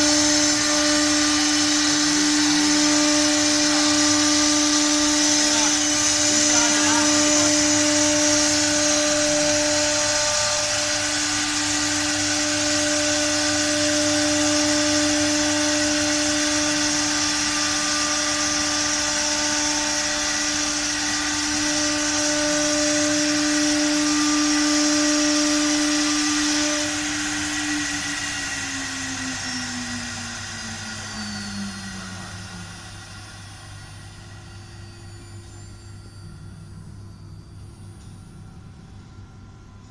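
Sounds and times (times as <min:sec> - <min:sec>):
router spindle whining: 0:00.0 - 0:39.9
low hum: 0:26.7 - 0:39.9.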